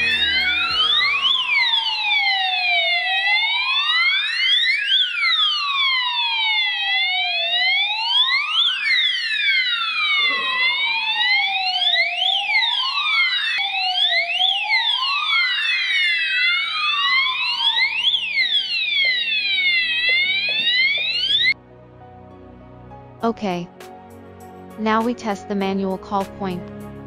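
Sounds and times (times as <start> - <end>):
wailing fire alarm tone: 0.0 - 21.6.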